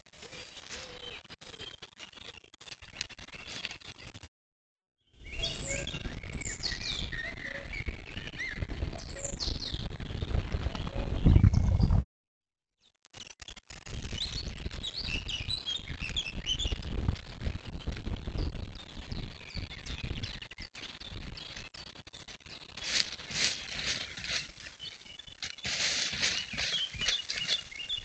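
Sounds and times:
small birds chirping: 5.2 - 12.0, 14.1 - 28.0
footsteps rustling in dry leaves: 22.7 - 28.0.

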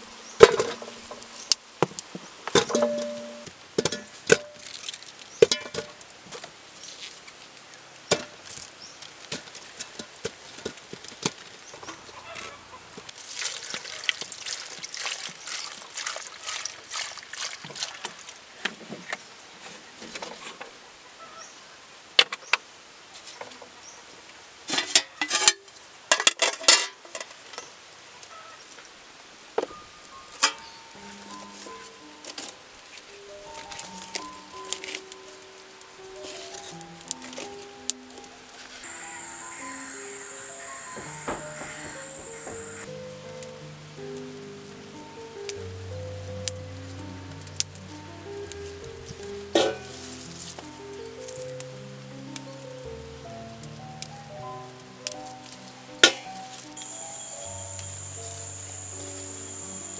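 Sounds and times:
pot and metal lid clattering: 0.4 - 1.2, 2.6 - 4.6, 5.4 - 6.0, 24.7 - 27.0, 49.5 - 49.9
water pouring and splashing: 2.5 - 11.7, 13.1 - 19.1.

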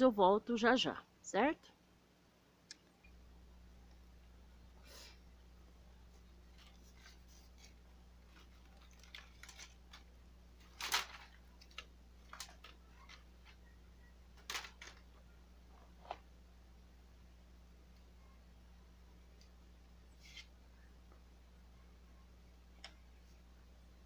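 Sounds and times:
faint low hum: 0.0 - 24.0
plants rustling: 6.5 - 13.2.

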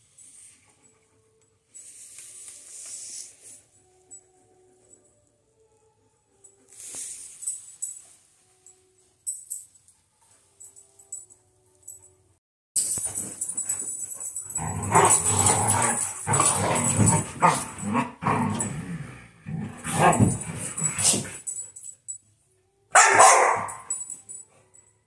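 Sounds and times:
dogs barking and growling: 12.9 - 21.6, 22.9 - 24.0.

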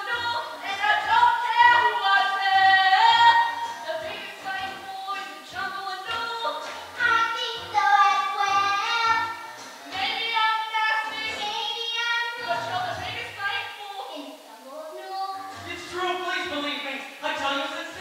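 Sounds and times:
instrumental accompaniment: 0.0 - 11.6
girls singing a show tune: 0.0 - 15.8.

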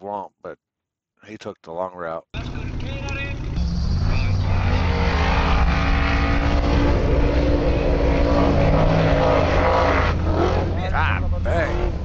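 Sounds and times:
buggy engine at high revs: 2.4 - 12.0.

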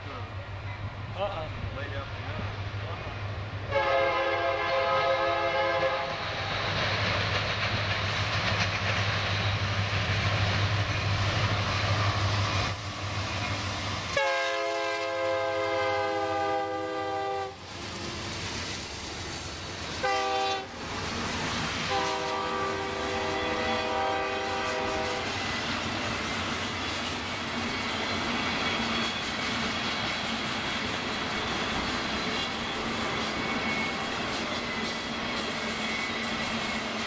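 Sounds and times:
freight train passing: 0.0 - 37.0
train air horn blasts: 3.7 - 6.2, 14.1 - 17.6, 19.9 - 20.8, 21.9 - 25.4.

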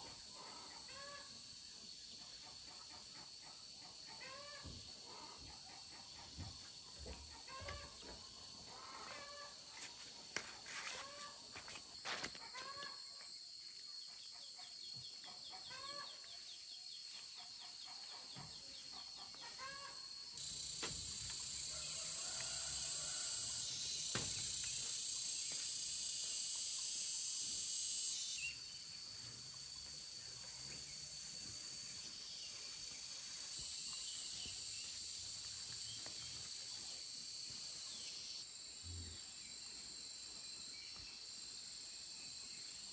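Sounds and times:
faint insect hum: 0.0 - 42.9
chickens or small birds calling: 7.3 - 9.5, 15.2 - 16.5, 17.4 - 20.0
high-pitched insect drone: 18.4 - 42.9.

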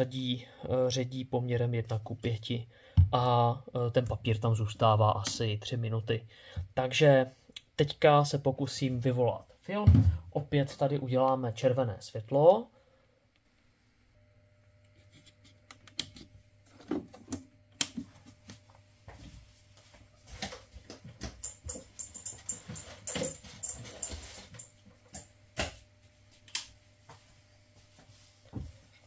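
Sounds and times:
low steady hum: 0.0 - 29.0
handling clicks and knocks: 20.4 - 25.3.

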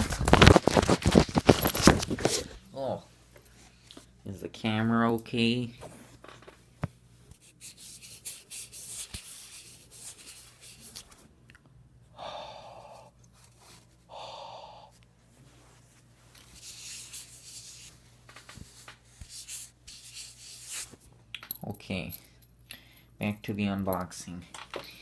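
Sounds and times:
clothing fabric rustling: 0.0 - 2.7, 15.2 - 21.1.

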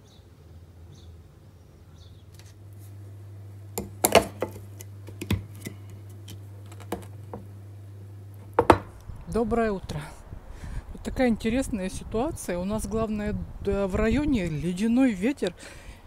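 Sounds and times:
steady low hum: 0.0 - 16.0
cutting board knocking on countertop: 3.8 - 4.6, 8.6 - 8.9.

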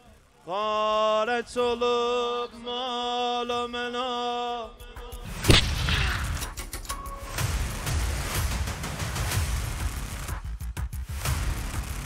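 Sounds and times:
sudden loud hit: 5.4 - 6.5.

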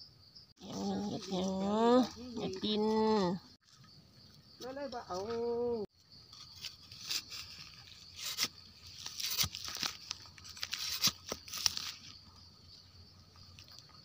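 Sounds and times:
dry leaves crackling and rustling: 6.6 - 12.2.

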